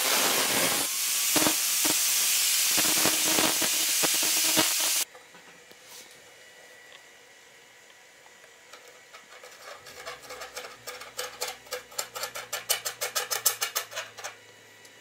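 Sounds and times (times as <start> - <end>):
threads scraping against metal tube: 9.1 - 14.0.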